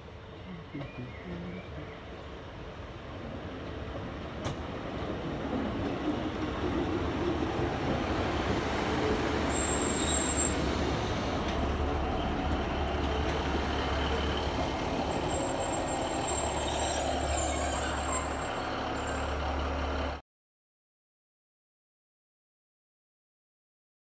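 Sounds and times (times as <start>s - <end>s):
train diesel engines humming: 0.0s - 20.2s
high brake squeal: 9.5s - 11.0s, 15.1s - 19.5s.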